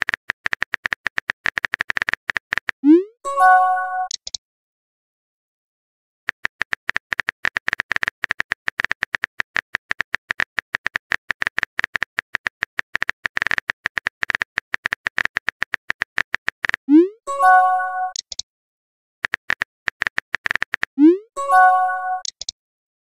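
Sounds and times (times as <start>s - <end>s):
keyboard typing clicks: 4.0s - 4.4s, 6.3s - 17.1s, 18.0s - 18.4s, 19.2s - 22.6s.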